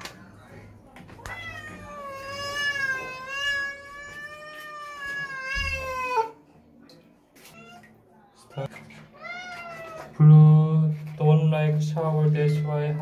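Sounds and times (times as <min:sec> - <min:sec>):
cat yowling: 0:01.3 - 0:06.4.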